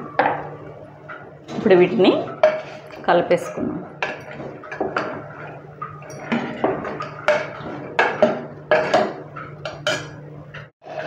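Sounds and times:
metal ladle scraping a pot: 0:01.6 - 0:10.2.

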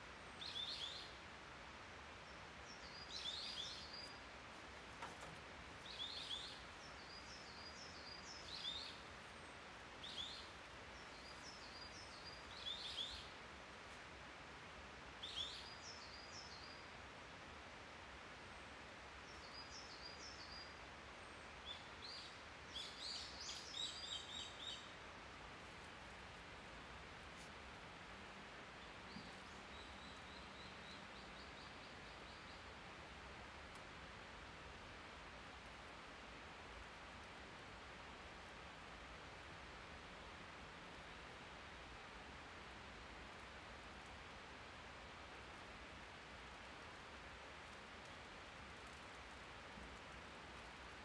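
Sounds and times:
songbird singing: 0:00.0 - 0:01.4, 0:02.0 - 0:13.6, 0:15.1 - 0:17.1, 0:18.4 - 0:34.4
forest ambience hiss: 0:00.0 - 0:51.0.

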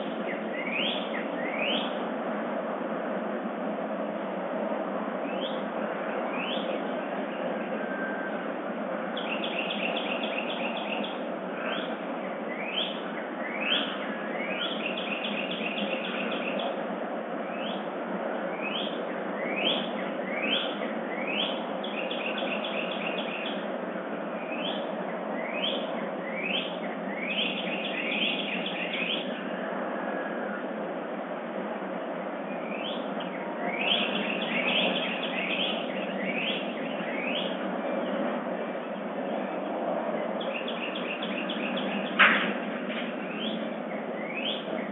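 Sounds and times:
songbirds singing: 0:00.0 - 0:02.4, 0:05.2 - 0:30.8, 0:32.2 - 0:44.9
steady background hiss: 0:00.0 - 0:44.9.

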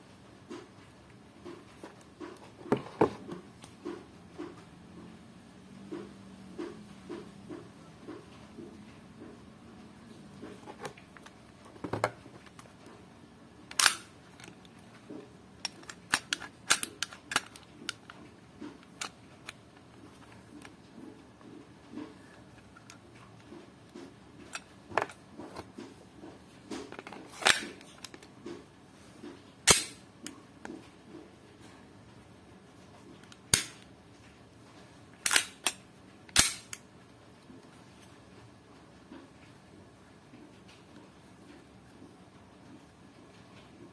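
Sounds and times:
pistol clicks: 0:13.7 - 0:14.1, 0:29.7 - 0:30.0, 0:33.5 - 0:33.8, 0:35.2 - 0:36.8.

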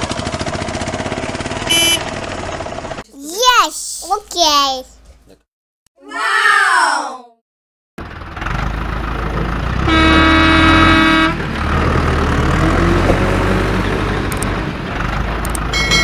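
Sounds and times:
heavy vehicle engine running: 0:00.0 - 0:03.0, 0:08.0 - 0:16.0
vehicle horn toot: 0:01.6 - 0:02.1, 0:09.8 - 0:11.4.

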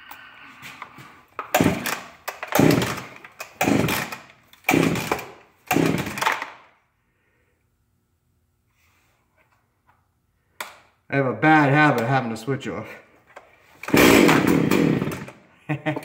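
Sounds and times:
chainsaw engine cranking: 0:01.4 - 0:06.5, 0:13.8 - 0:15.4
chainsaw starter cord yanks: 0:01.4 - 0:06.6, 0:13.8 - 0:15.4.

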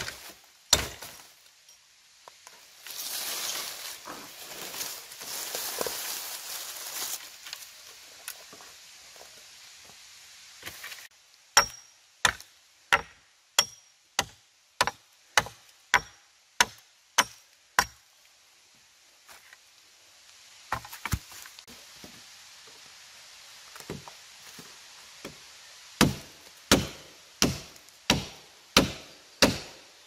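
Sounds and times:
axe chopping wood: 0:00.0 - 0:01.2, 0:11.6 - 0:18.0, 0:26.0 - 0:29.8
rustling: 0:02.3 - 0:09.4.

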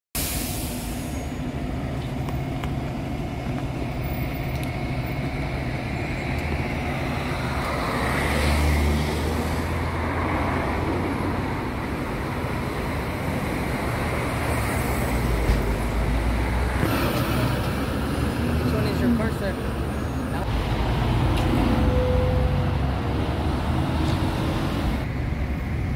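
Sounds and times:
highway traffic hum: 0:00.1 - 0:25.9
vehicles passing: 0:00.8 - 0:25.9.

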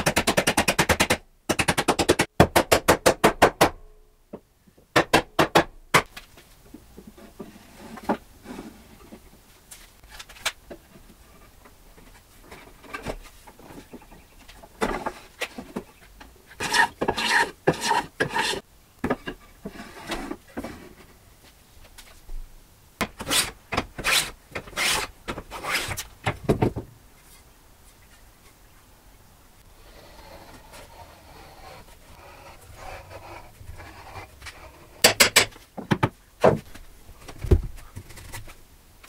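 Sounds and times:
wood scraping on wood: 0:16.5 - 0:18.6, 0:23.1 - 0:26.1, 0:29.7 - 0:35.1.

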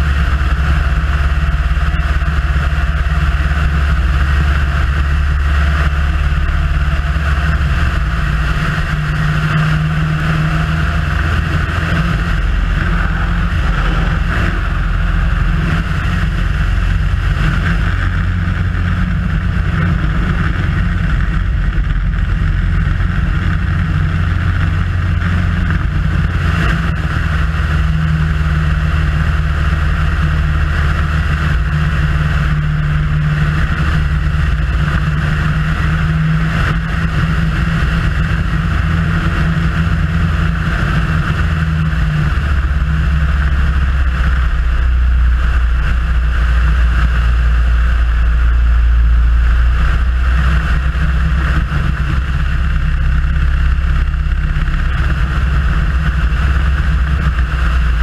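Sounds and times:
light aircraft engine droning: 0:00.0 - 0:58.0
airflow rushing: 0:01.3 - 0:27.0, 0:39.9 - 0:58.0.

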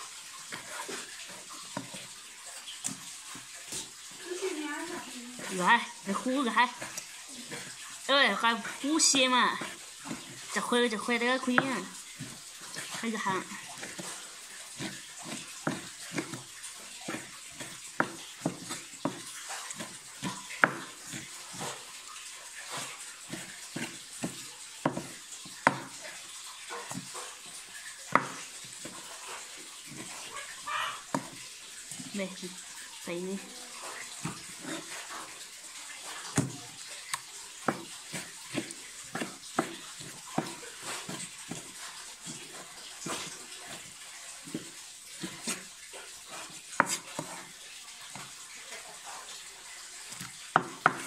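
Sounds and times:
knife chopping on wooden board: 0:11.5 - 0:21.8, 0:22.7 - 0:26.0, 0:28.1 - 0:29.1, 0:31.1 - 0:31.4, 0:36.2 - 0:36.6, 0:37.6 - 0:43.8, 0:46.7 - 0:47.4, 0:50.2 - 0:51.0
cleaver chopping on wooden board: 0:17.1 - 0:21.3, 0:23.4 - 0:26.0, 0:28.1 - 0:28.4.

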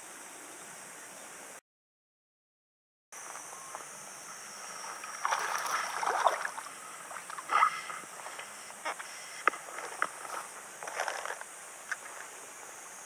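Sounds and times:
steady hiss: 0:00.0 - 0:01.6, 0:03.2 - 0:13.0
fish splashing at water surface: 0:05.0 - 0:07.5.

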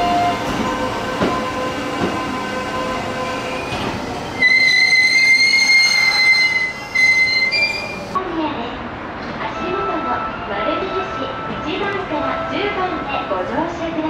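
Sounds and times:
train wheels squealing on rails: 0:00.0 - 0:08.2.

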